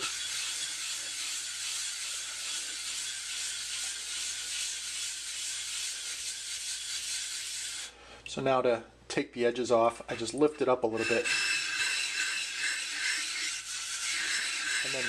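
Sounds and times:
whetstone scraping on plate: 0:00.0 - 0:07.8, 0:10.9 - 0:15.0.

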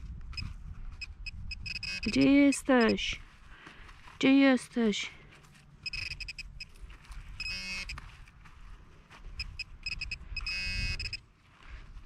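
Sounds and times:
metal detector beeping: 0:00.3 - 0:03.2, 0:05.8 - 0:06.8, 0:07.4 - 0:08.0, 0:09.4 - 0:11.2
metal detector buzz: 0:01.5 - 0:03.0, 0:05.8 - 0:06.5, 0:07.4 - 0:08.0, 0:09.4 - 0:11.2.

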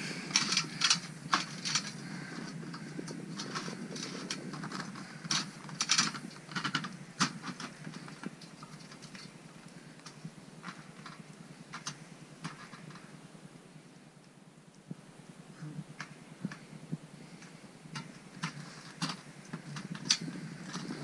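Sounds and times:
crampons clicking on metal ladder: 0:00.0 - 0:13.1, 0:17.4 - 0:21.0.

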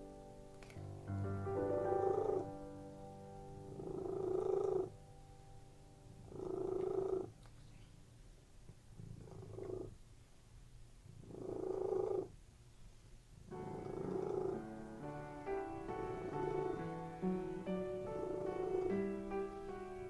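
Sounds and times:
soft background music: 0:00.0 - 0:08.1, 0:13.4 - 0:20.0
cat purring: 0:01.7 - 0:02.6, 0:03.6 - 0:05.0, 0:06.0 - 0:10.1, 0:11.0 - 0:20.0.

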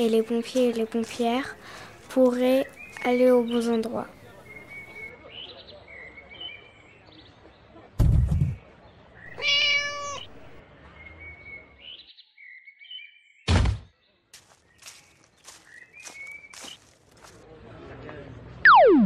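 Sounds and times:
thump: 0:08.0 - 0:08.6, 0:13.5 - 0:13.9
cat meow: 0:09.3 - 0:10.4.

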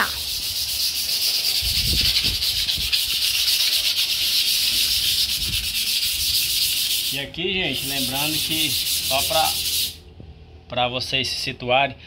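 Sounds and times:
sandpaper rubbing on steel: 0:00.0 - 0:10.0.

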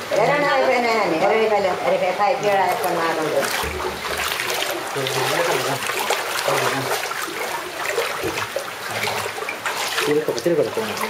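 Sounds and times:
floodwater rushing and splashing: 0:00.0 - 0:11.0.

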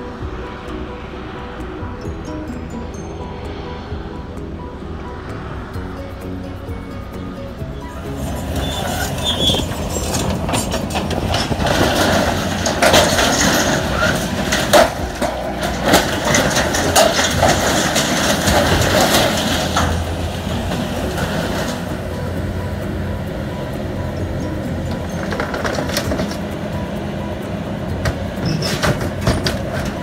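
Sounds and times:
heavy vehicle engine running: 0:00.0 - 0:30.0
rattles and clanks: 0:08.0 - 0:30.0.

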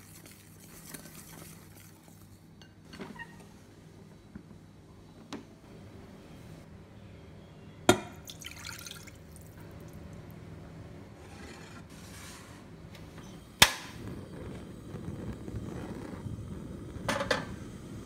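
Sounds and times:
gas flame rushing: 0:11.2 - 0:18.0
gas stove igniter snap: 0:13.6 - 0:14.0.

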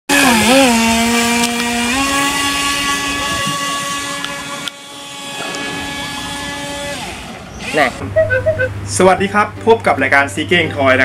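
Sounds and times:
electric boat motor whine: 0:00.1 - 0:08.1.

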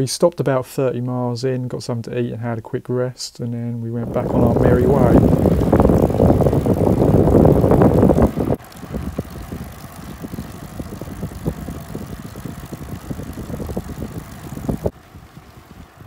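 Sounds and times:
tyres crackling on grit: 0:03.9 - 0:16.0
bicycle rolling on rough lane: 0:04.0 - 0:16.0.

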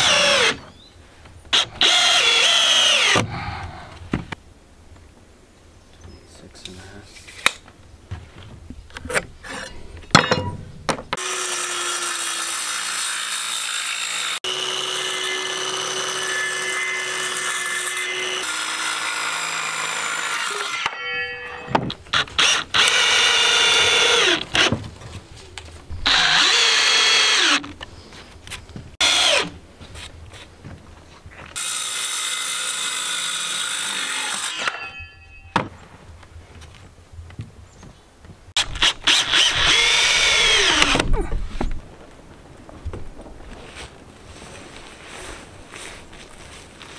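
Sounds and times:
circular saw cutting wood: 0:11.2 - 0:21.5, 0:26.0 - 0:27.6, 0:31.6 - 0:34.9, 0:38.6 - 0:41.0.

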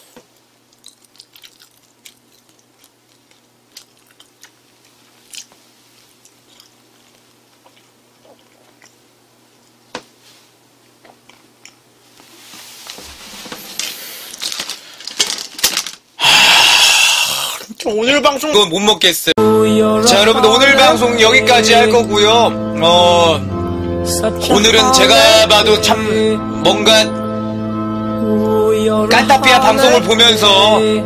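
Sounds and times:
person chewing: 0:00.6 - 0:09.9, 0:10.8 - 0:12.3.

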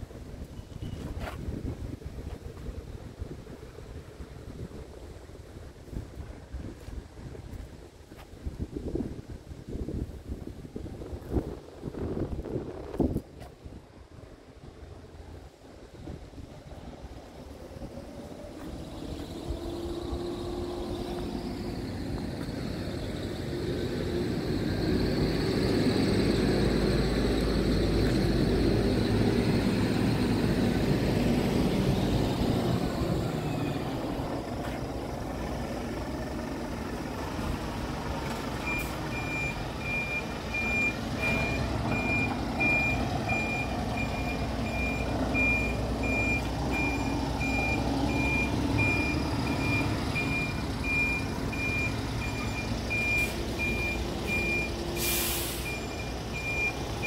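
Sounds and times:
diesel truck engine rumbling: 0:00.0 - 0:57.0
reversing alarm beeping: 0:38.6 - 0:57.0.

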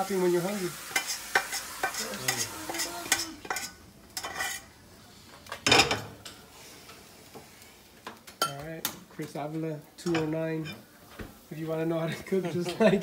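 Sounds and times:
oil sizzling: 0:00.0 - 0:13.0
metal spatula scraping pan: 0:00.8 - 0:04.7.

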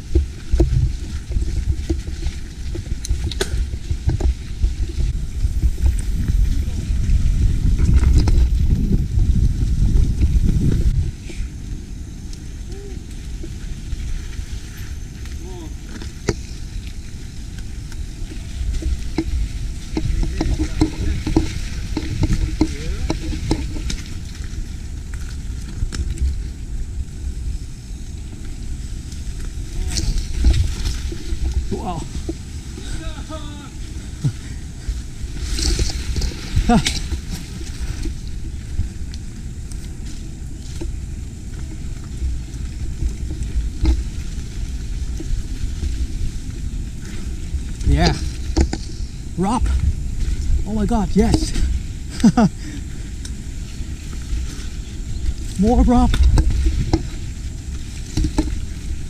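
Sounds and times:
bike knocks and clatters: 0:00.0 - 0:08.9, 0:13.3 - 0:26.5, 0:29.1 - 0:50.5, 0:56.1 - 0:59.0
bike tyres rumbling and rattling: 0:00.0 - 0:59.0.

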